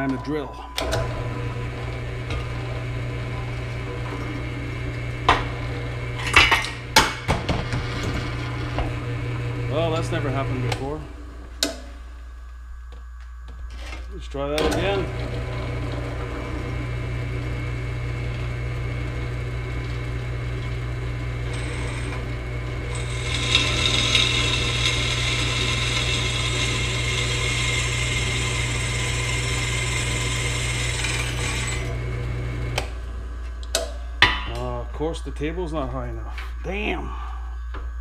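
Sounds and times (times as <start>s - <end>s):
drill press motor humming: 0.0s - 33.8s
drill bit grinding metal: 21.0s - 32.8s.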